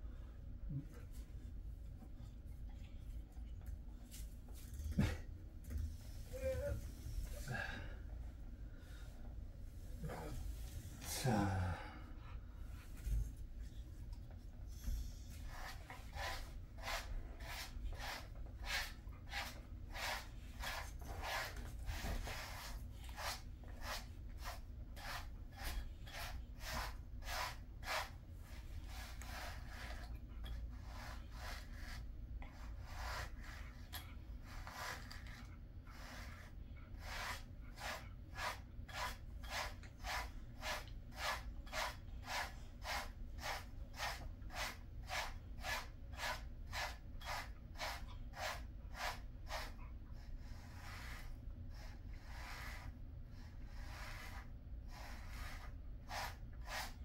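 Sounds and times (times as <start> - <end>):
brush stroking dog's coat: 15.1 - 30.1, 30.8 - 49.8, 50.5 - 52.9, 53.8 - 57.0.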